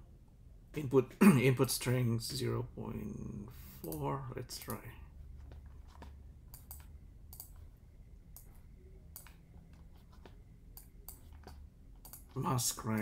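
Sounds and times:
low steady hum: 0.0 - 13.0
mouse and keyboard clicks: 5.5 - 7.6, 8.3 - 13.0.

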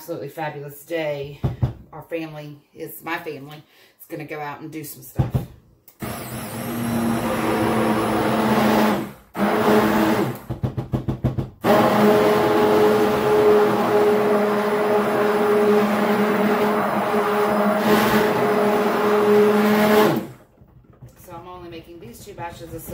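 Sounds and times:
stick blender running: 5.9 - 10.6, 11.6 - 22.9.

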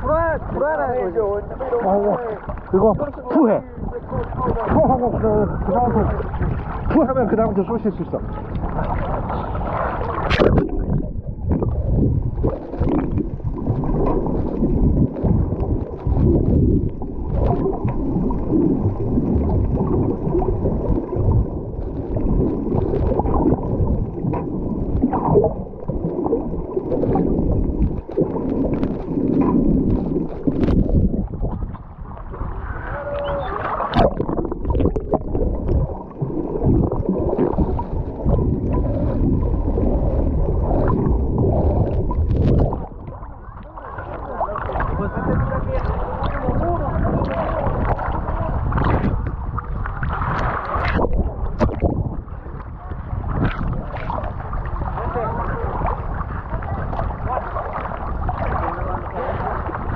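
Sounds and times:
underwater water sloshing: 0.0 - 59.9
small clicks and crackles: 12.4 - 18.5, 21.8 - 31.0.

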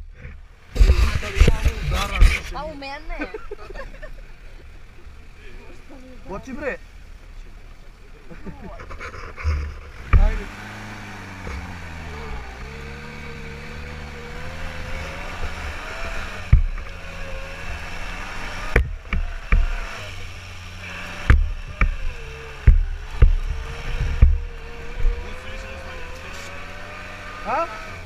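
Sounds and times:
sharp thumps over rough ground: 0.0 - 2.7, 8.6 - 20.2, 21.0 - 27.0
buggy engine running: 0.0 - 28.0.

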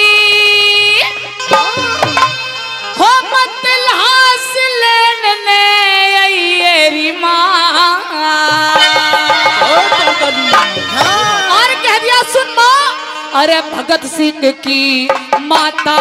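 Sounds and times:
woman singing through loudspeakers: 0.0 - 1.9, 2.9 - 16.0.

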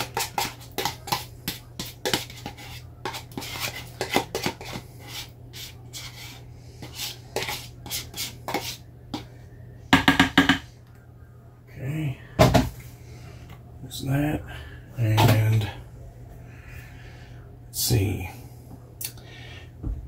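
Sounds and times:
spoon scraping against a tub: 0.0 - 9.3.

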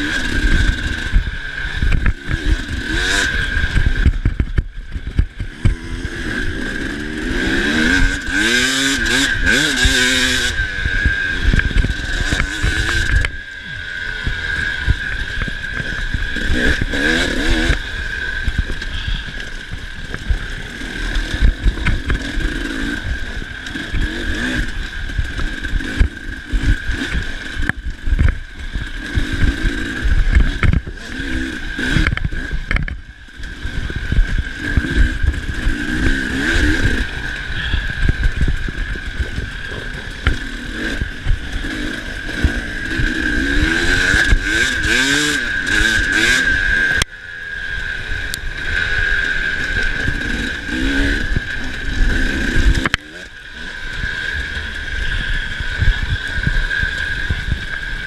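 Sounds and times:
motorcycle engine revving: 0.0 - 58.0
wind buffeting microphone: 33.6 - 45.2.

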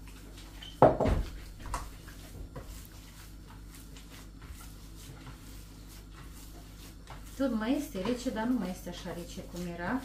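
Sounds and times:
hands squelching wet meat: 1.3 - 8.5.

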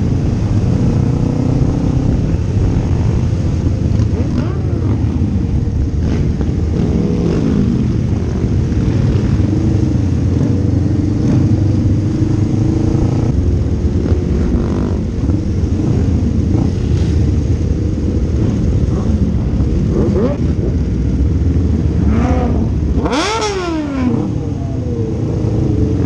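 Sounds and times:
motorcycle engine revving: 0.0 - 26.0
other motorcycles: 0.0 - 26.0.

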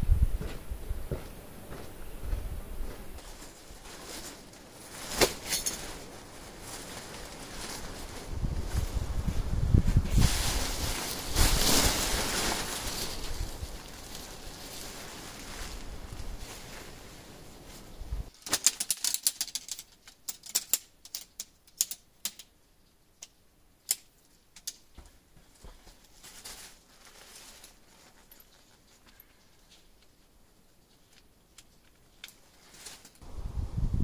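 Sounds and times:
tent fabric rustling: 3.2 - 18.4, 25.1 - 30.0, 32.4 - 33.6
tent pole sections clicking together: 18.3 - 22.5, 23.2 - 24.9, 31.1 - 33.2.

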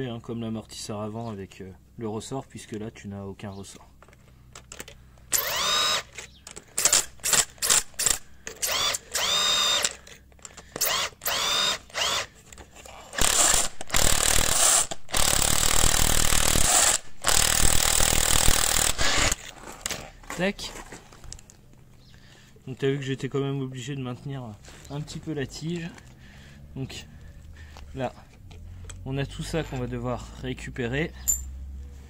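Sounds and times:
power tool whining: 5.3 - 19.5.

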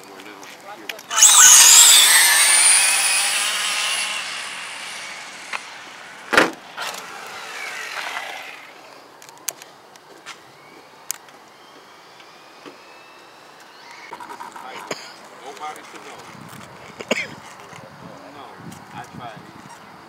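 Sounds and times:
rc cars electric motor whine: 1.1 - 9.0.

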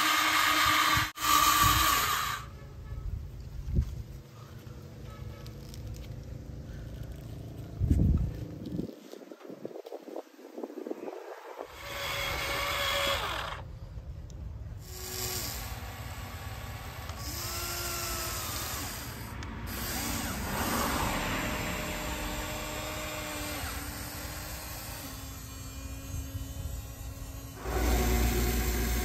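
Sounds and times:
toy electric motors whining: 0.0 - 2.6, 11.6 - 13.8, 14.7 - 29.0
steady buzz: 11.6 - 29.0.

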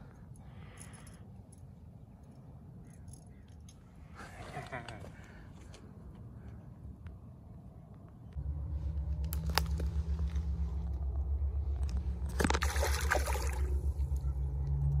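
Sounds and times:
low pulsing rumble: 8.4 - 15.0
fish splashing in water: 12.3 - 14.0.

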